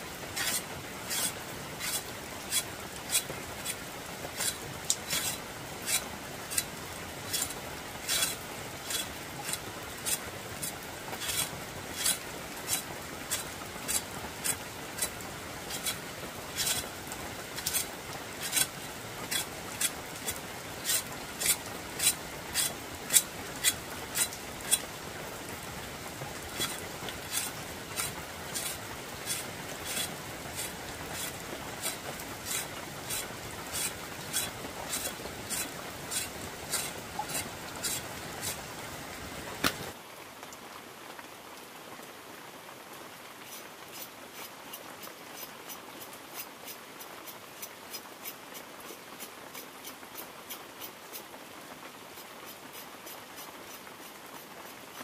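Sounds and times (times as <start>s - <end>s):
steady hiss: 0.0s - 40.0s.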